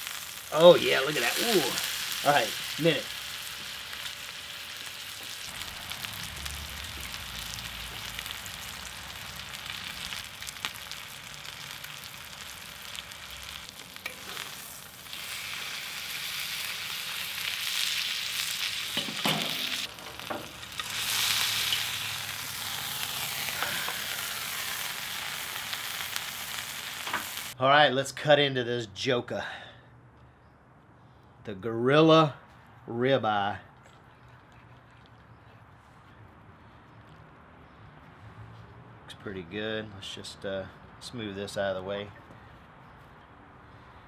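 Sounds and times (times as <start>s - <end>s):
steak sizzling on a hot slab: 0.0s - 27.6s.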